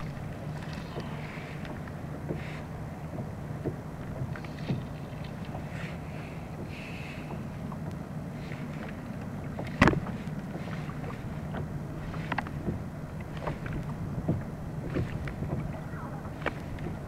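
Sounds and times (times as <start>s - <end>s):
light ticks and knocks: 0.0s - 5.7s, 6.6s - 8.0s, 11.5s - 15.8s
steady low hum: 0.0s - 17.0s
waves lapping against kayak hull: 0.0s - 17.0s.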